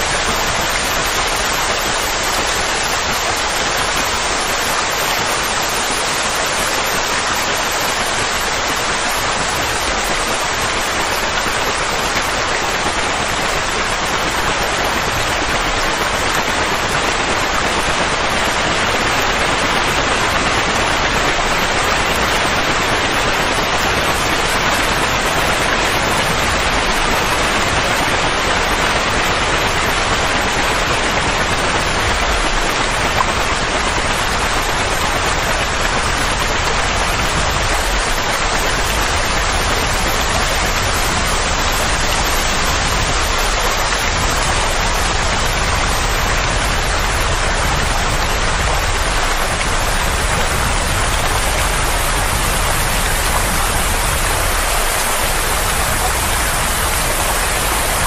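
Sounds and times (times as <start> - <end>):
steady rushing noise: 0.0 - 58.0.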